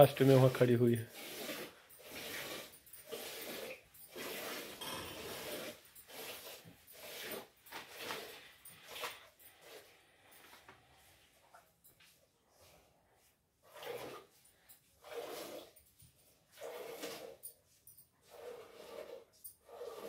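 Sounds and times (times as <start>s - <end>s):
milk squirting into bucket: 1.0s - 10.3s, 13.6s - 14.4s, 15.0s - 17.4s.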